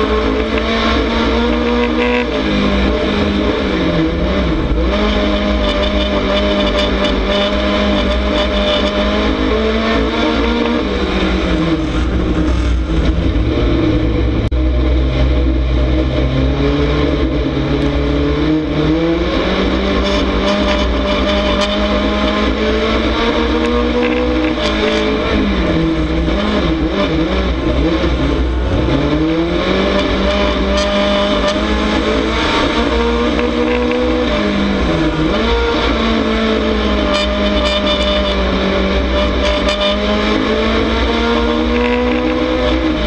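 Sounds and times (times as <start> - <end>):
race car engine revving: 0.0 - 43.0.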